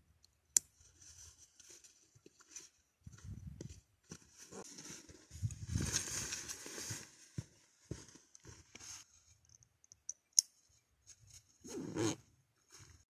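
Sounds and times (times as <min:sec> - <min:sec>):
fabric rustling: 0:01.0 - 0:09.1.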